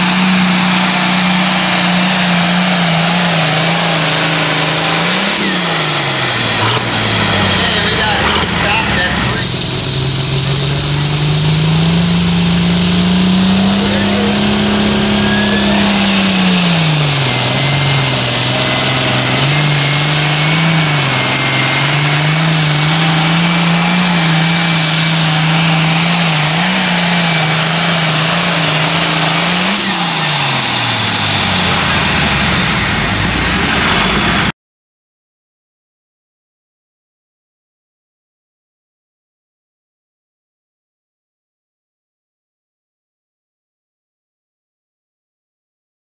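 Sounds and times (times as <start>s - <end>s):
high turbo whine: 0.0s - 34.5s
tractor diesel engine at full power: 0.0s - 34.5s.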